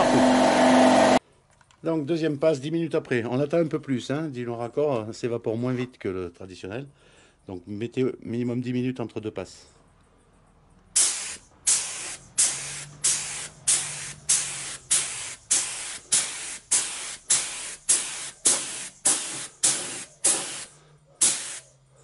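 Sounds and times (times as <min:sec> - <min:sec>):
spray gun hissing bursts: 0:11.0 - 0:21.7.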